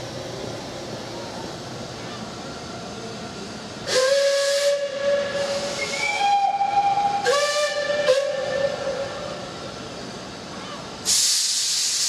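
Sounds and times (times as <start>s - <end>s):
steam hissing: 3.3s - 10.4s, 11.0s - 12.0s
steam whistle blast: 3.9s - 9.4s.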